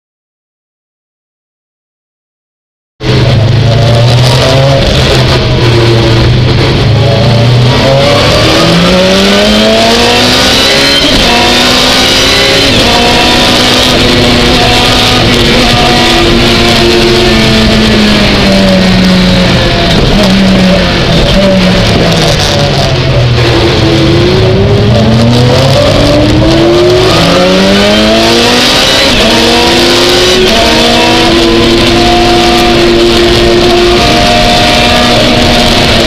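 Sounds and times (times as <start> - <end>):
race car engine: 3.0 - 36.0.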